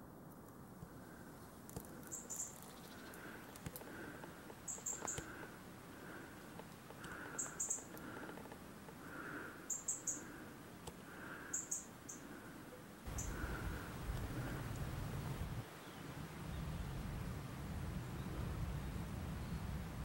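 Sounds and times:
high thin bird calls: 0:02.0 - 0:03.3, 0:04.6 - 0:05.4, 0:09.6 - 0:10.4, 0:13.1 - 0:13.7
low repeating bird note: 0:13.1 - 0:15.6.

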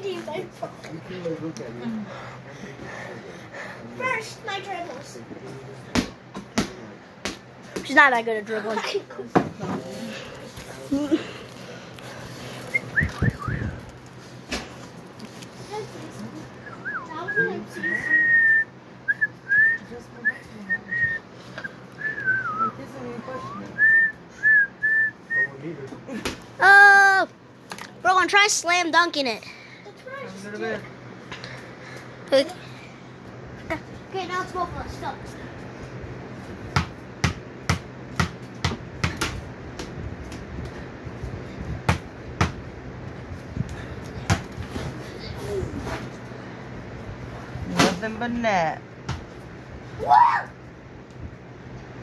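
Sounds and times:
person whistling a tune: 0:16.7 - 0:22.8, 0:23.4 - 0:25.6
basketball bouncing on floor: 0:36.8 - 0:39.9.

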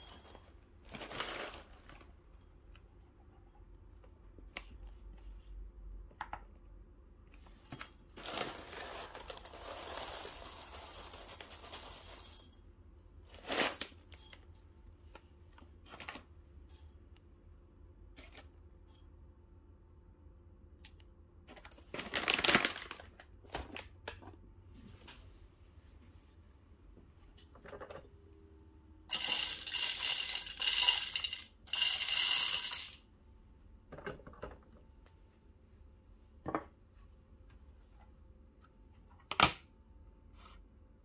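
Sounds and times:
coffee beans pouring into a bowl: 0:08.2 - 0:12.3, 0:29.1 - 0:33.0
bag crinkling: 0:21.8 - 0:23.3.

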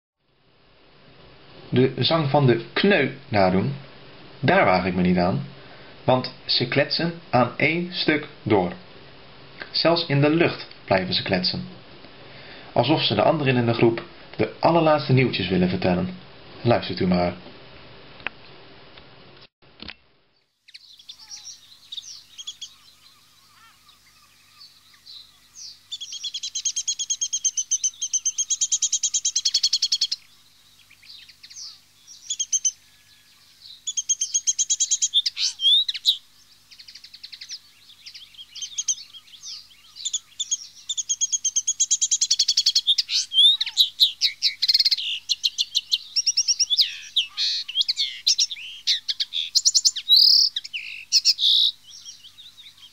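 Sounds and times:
bird chattering twitter: 0:20.7 - 0:33.0, 0:33.6 - 0:52.9.

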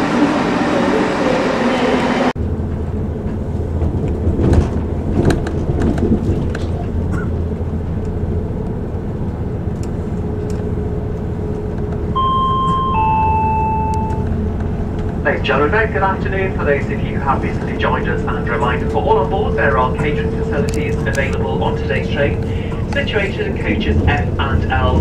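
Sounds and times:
train interior drone: 0:00.0 - 0:25.0
two-note descending chime: 0:12.1 - 0:14.4
station sound: 0:12.1 - 0:14.5.

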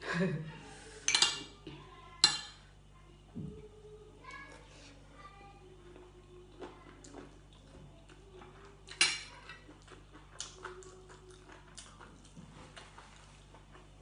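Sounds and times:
metal spoon clinking on dishware: 0:01.1 - 0:01.5, 0:02.2 - 0:02.6.

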